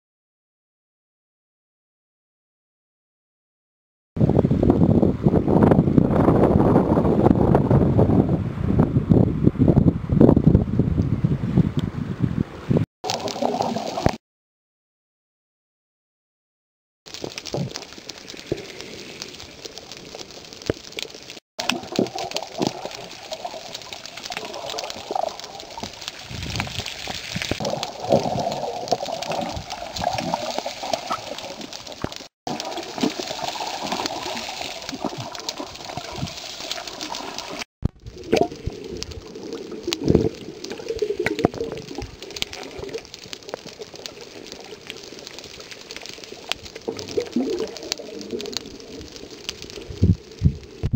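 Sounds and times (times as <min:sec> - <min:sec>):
knocks and splashes: 0:21.6 - 0:38.8
water sloshing and gurgling: 0:21.6 - 0:50.9.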